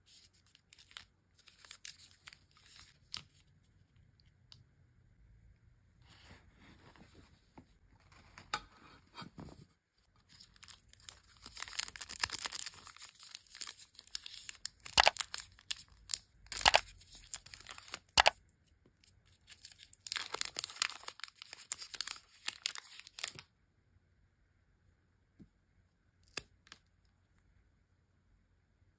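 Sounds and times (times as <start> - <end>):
plastic wrapper crinkling: 0.1 - 3.5, 10.3 - 18.4, 19.3 - 23.5.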